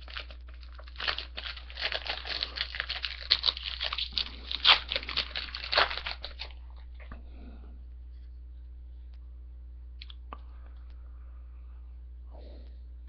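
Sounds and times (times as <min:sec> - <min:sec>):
foil wrapper crinkling and tearing: 0:00.0 - 0:06.9.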